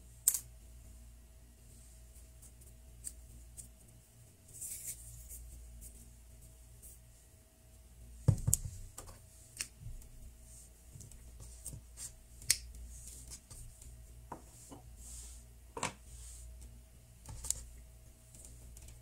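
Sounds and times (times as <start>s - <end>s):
low steady hum: 0.0s - 19.0s
knock on table: 8.3s - 8.7s.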